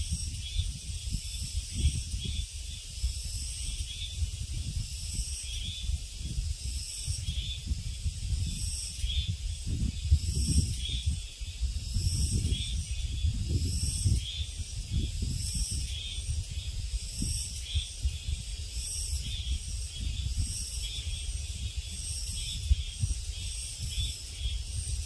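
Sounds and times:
insects droning: 0.0 - 25.0
wind rumbling on microphone: 0.0 - 25.0.

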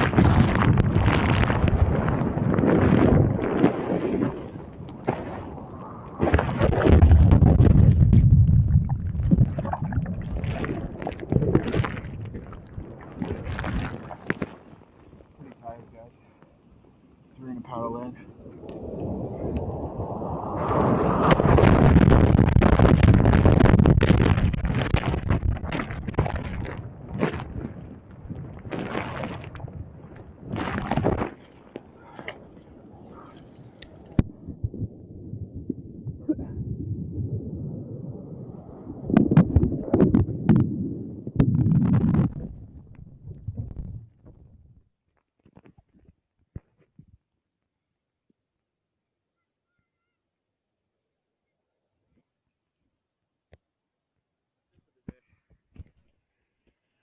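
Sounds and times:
churning underwater turbulence: 0.0 - 15.4, 18.0 - 44.6
surf rushing over microphone: 18.0 - 26.8.

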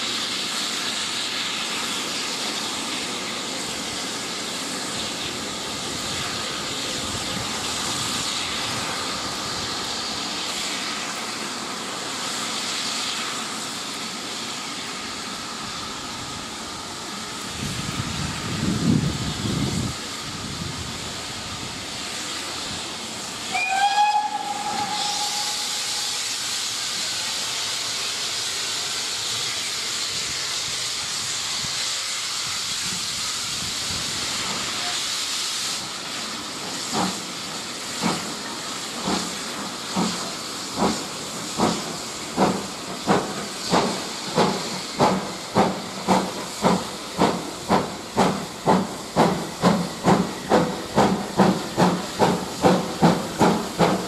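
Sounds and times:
steam hissing: 0.0 - 54.0
steam locomotive chuffing: 0.0 - 54.0
steam locomotive whistle: 23.4 - 26.6.

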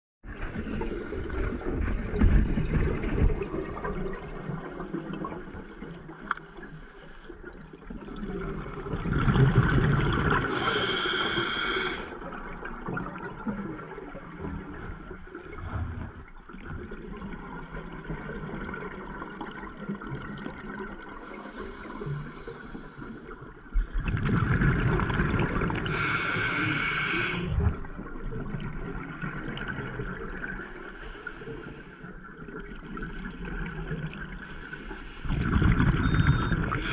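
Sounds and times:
low watery rumble: 0.2 - 36.9
exhaled bubbles bursting: 7.9 - 10.7, 23.8 - 26.0, 35.3 - 36.9
regulator breathing underwater: 10.4 - 12.2, 25.8 - 27.7, 34.4 - 36.9.

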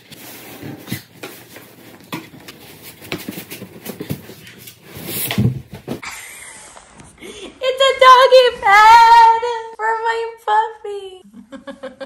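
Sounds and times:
cardboard box rustling and scraping: 0.1 - 6.0.

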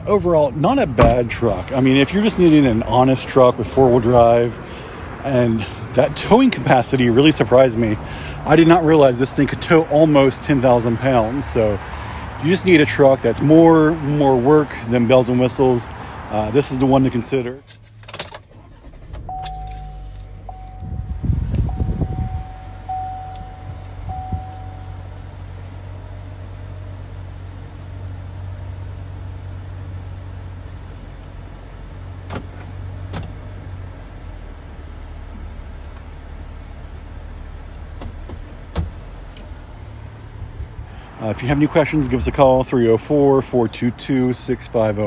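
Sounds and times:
car engine starting and idling: 0.0 - 45.0
dashboard chime: 19.3 - 25.2.

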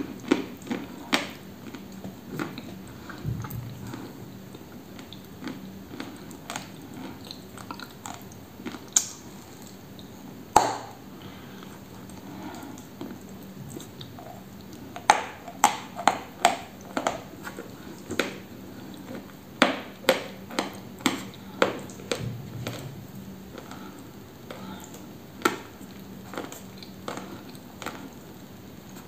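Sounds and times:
sharp crunches of chewing: 0.0 - 10.1.

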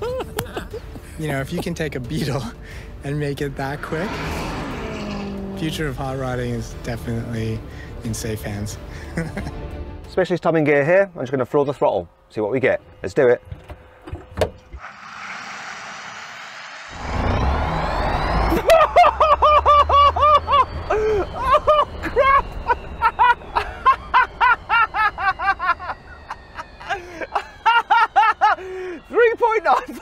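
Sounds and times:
man laughing hard: 0.0 - 1.1, 9.0 - 9.6, 18.5 - 29.1
electric motor whine: 3.6 - 6.3, 14.7 - 18.8.

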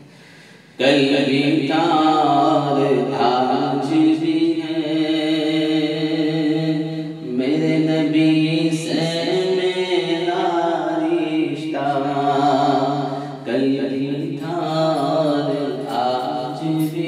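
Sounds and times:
man singing devotional chant: 0.7 - 17.0.

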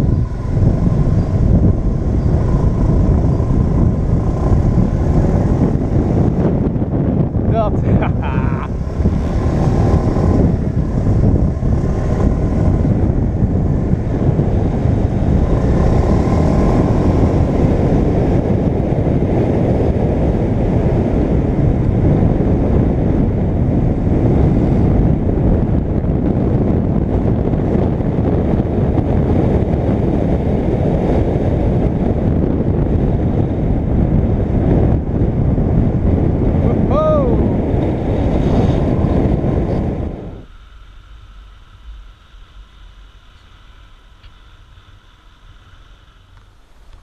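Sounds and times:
scooter engine running: 0.0 - 36.5
wind on microphone: 0.0 - 47.0.

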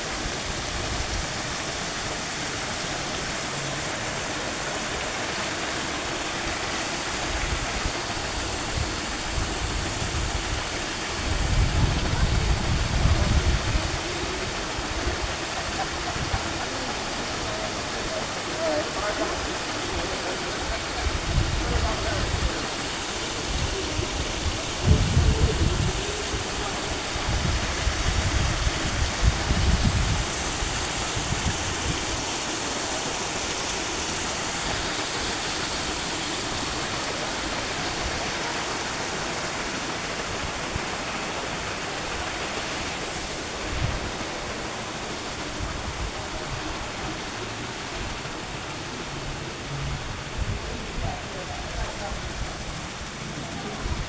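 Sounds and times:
steady rushing hiss: 0.0 - 54.0
wind gusts buffeting microphone: 7.4 - 16.8, 20.8 - 32.3, 41.7 - 54.0.

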